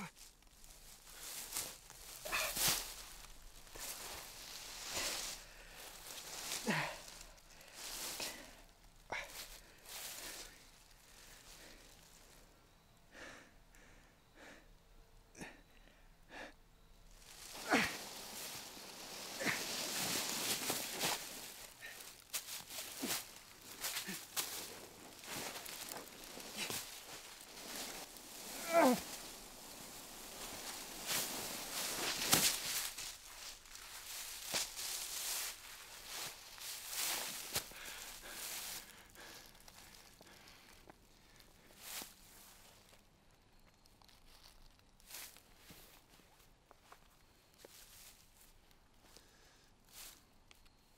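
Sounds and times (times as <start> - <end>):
dry leaves rustling and crunching: 0.1 - 12.3, 17.1 - 40.6, 43.9 - 46.0.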